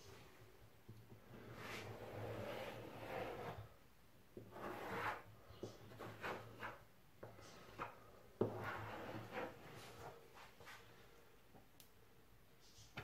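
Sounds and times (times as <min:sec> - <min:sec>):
wiping strokes on countertop: 0:01.3 - 0:03.7, 0:04.5 - 0:10.9.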